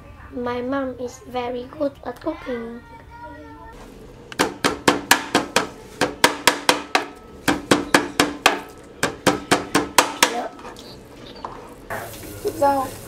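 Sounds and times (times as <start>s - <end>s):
knife chopping on plastic board: 4.4s - 10.4s.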